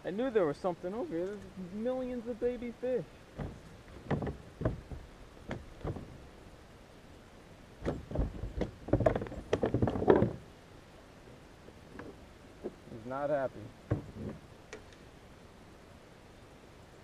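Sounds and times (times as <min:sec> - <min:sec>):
gear knocking against kayak hull: 0:03.4 - 0:06.2, 0:07.8 - 0:10.4, 0:13.8 - 0:14.8.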